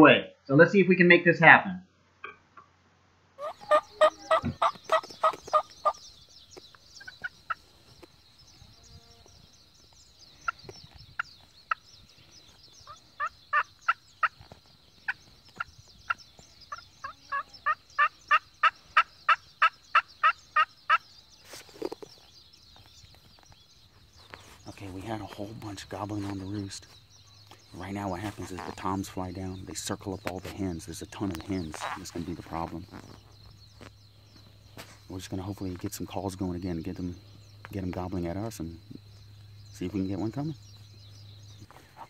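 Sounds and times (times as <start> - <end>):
turkey call yelps: 3.4 - 6.0, 16.7 - 21.0.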